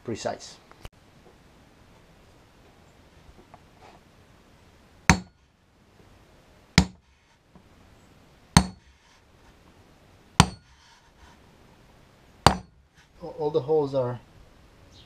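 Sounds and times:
hammer striking metal punch: 5.1 - 5.4, 6.8 - 7.0, 8.6 - 8.9, 10.4 - 10.7, 12.4 - 12.8.

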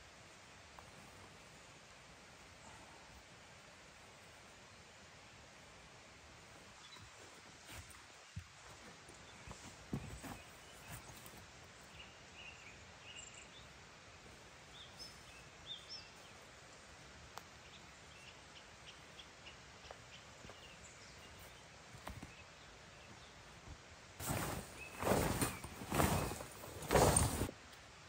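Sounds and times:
faint steady hiss: 0.0 - 28.0
small clicks and rustles: 24.2 - 27.8.

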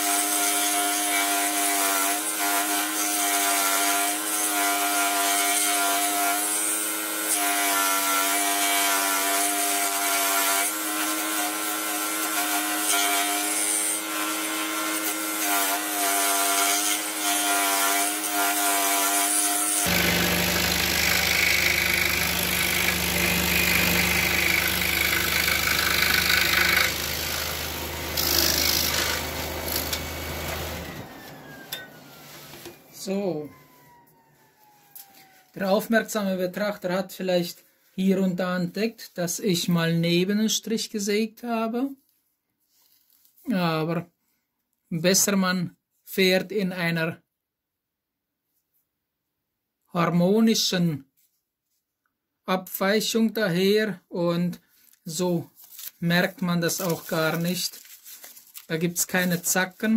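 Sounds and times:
scroll saw cutting wood: 0.0 - 35.5, 56.2 - 57.8.

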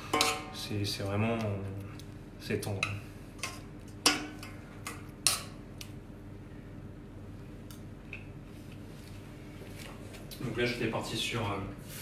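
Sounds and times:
metal spoon clinking on saucepan: 0.1 - 0.6.

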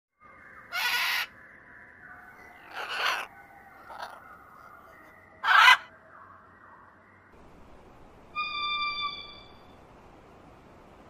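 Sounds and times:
macaws squawking: 0.7 - 1.3, 2.6 - 4.2, 5.4 - 5.9.

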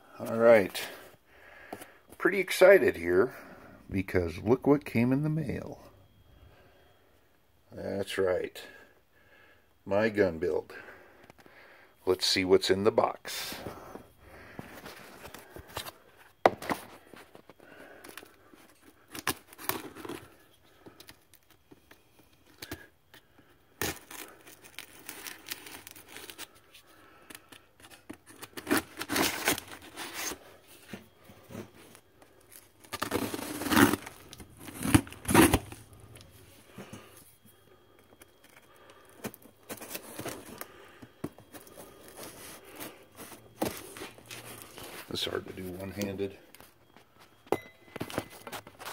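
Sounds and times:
tape tearing: 27.8 - 30.4, 32.8 - 35.8
cardboard scraping and rustling: 41.3 - 45.8.

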